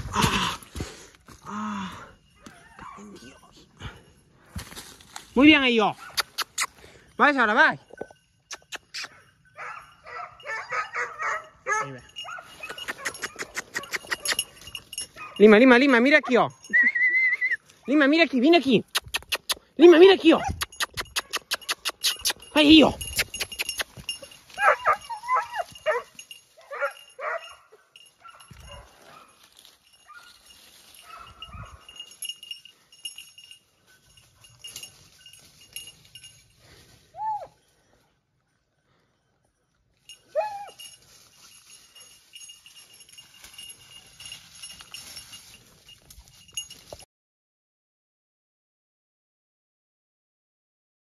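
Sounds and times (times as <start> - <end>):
puppy yelping barks: 9.1 - 14.5, 24.6 - 26.1, 26.7 - 28.9
rustling through dry scrub: 28.0 - 32.2, 40.8 - 47.0.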